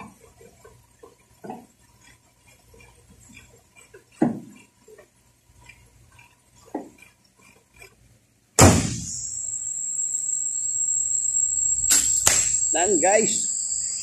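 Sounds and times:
truck hood slamming: 0:08.6 - 0:09.1
high-pitched whine with hiss: 0:08.6 - 0:14.0.

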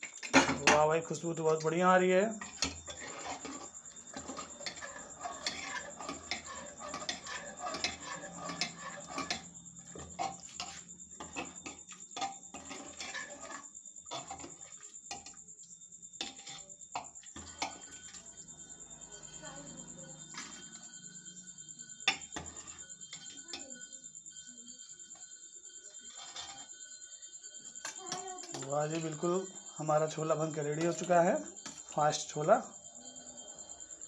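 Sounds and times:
metal ladle clinking and scraping pot: 0:00.0 - 0:15.4, 0:16.2 - 0:18.5, 0:20.2 - 0:20.9, 0:22.0 - 0:23.5, 0:25.9 - 0:26.7, 0:27.8 - 0:32.3.

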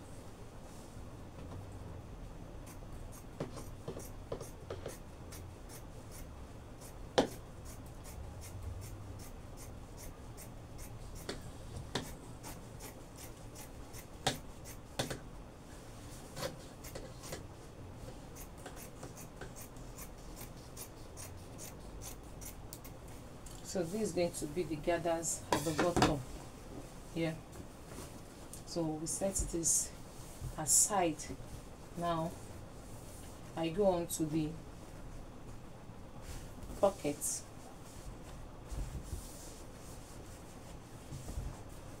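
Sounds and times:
scissors snipping fabric: 0:18.4 - 0:22.9.

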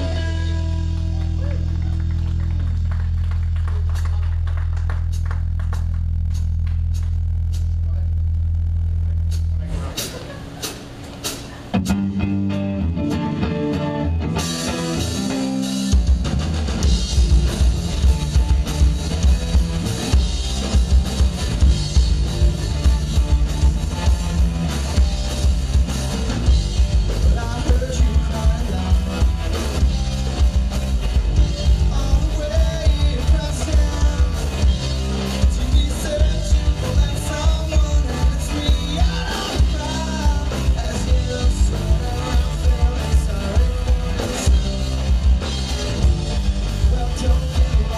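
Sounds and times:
live rock band playing: 0:00.0 - 0:07.7, 0:09.3 - 0:47.9.

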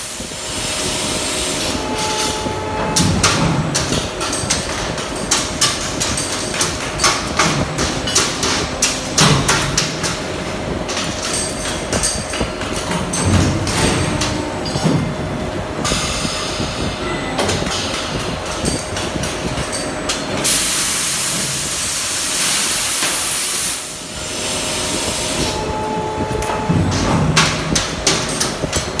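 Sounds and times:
die-casting machine clanking: 0:01.7 - 0:21.7, 0:25.4 - 0:29.0
loud hiss of spray steam: 0:20.5 - 0:25.5.

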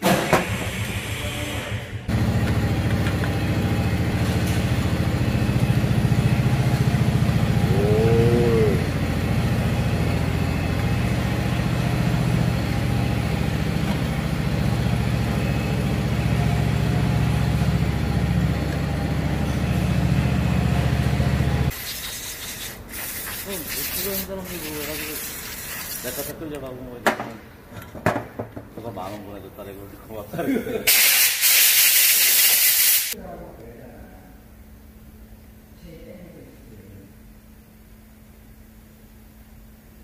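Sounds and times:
motor-driven machine running: 0:00.6 - 0:21.8.

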